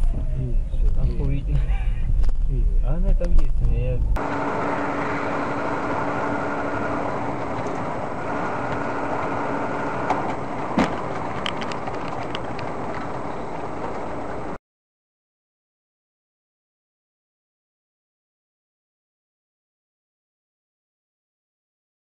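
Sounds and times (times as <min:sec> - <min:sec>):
car engine and road noise: 0:00.0 - 0:14.6.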